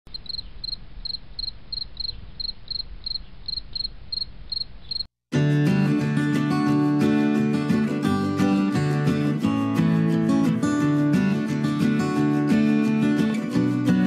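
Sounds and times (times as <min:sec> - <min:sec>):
cricket chirping: 0:00.1 - 0:05.1
strummed acoustic guitar music: 0:05.3 - 0:14.0.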